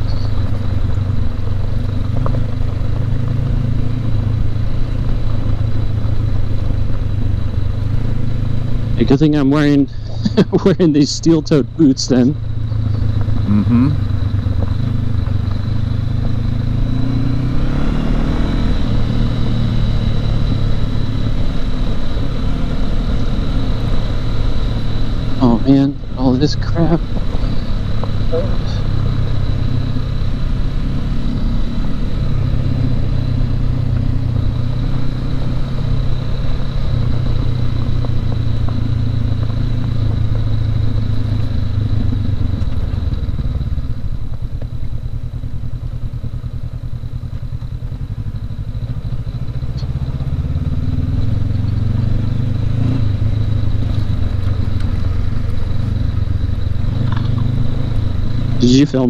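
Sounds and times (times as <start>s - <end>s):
motorcycle engine running: 0.0s - 59.0s
thin high whine: 8.9s - 14.1s.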